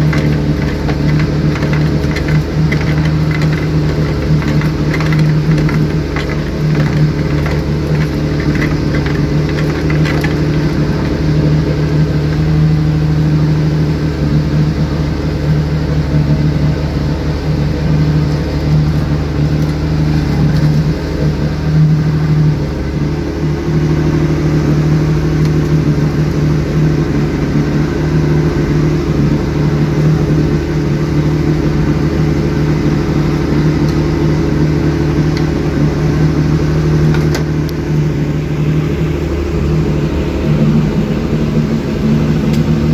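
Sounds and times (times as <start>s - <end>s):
boat motor running steadily: 0.0s - 42.9s
water rushing along hull: 0.0s - 42.9s.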